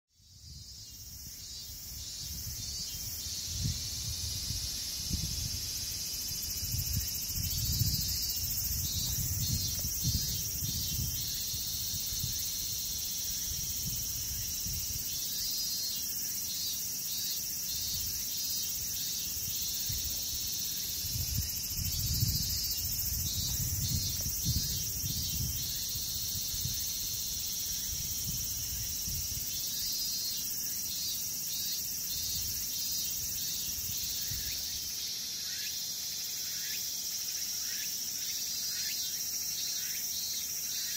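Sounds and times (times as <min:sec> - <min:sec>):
insects chirring: 0:00.2 - 0:40.9.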